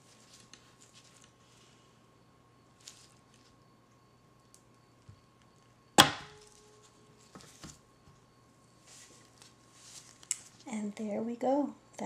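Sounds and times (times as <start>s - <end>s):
taut wire ringing: 6.0s - 6.6s.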